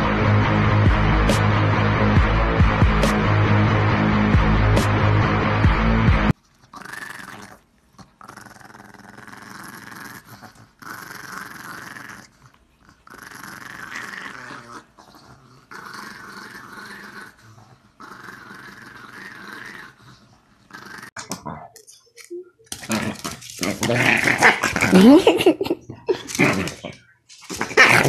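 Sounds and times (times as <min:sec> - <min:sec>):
loud music: 0:00.0 - 0:06.3
small dog growling: 0:06.6 - 0:21.7.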